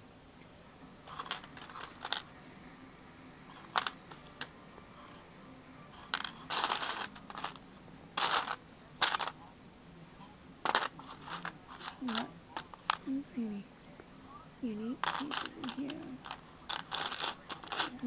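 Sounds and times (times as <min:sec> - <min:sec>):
plastic bricks clattering: 0:01.1 - 0:02.3, 0:03.6 - 0:04.5, 0:06.1 - 0:07.6, 0:08.2 - 0:09.4, 0:10.6 - 0:13.0, 0:15.0 - 0:18.0.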